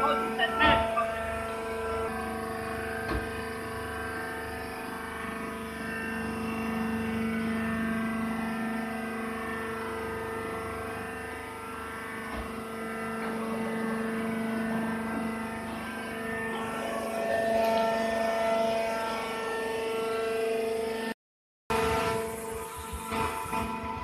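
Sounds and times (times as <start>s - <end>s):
hydraulic power unit humming: 0.0s - 21.1s, 21.7s - 24.0s.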